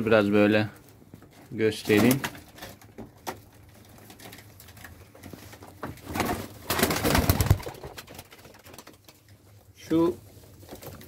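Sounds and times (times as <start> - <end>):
pigeon wingbeats flurry: 6.0 - 9.2.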